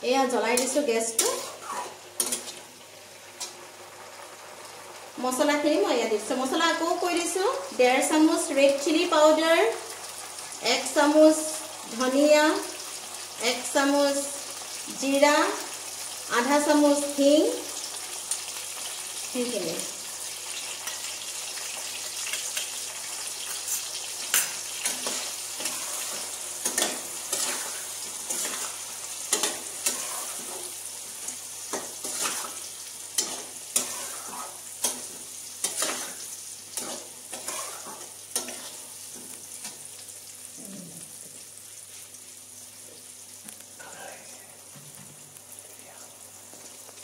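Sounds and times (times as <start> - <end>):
frying in hot oil sizzling: 0.0 - 47.0
metal spatula scraping pan: 24.3 - 30.7, 31.7 - 32.6, 33.2 - 36.2, 36.8 - 38.8.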